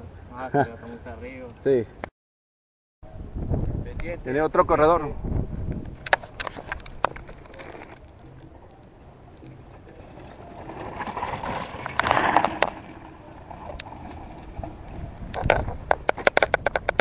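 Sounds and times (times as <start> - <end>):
bike rattling: 5.8 - 17.0
tyres crunching on gravel: 6.5 - 16.3.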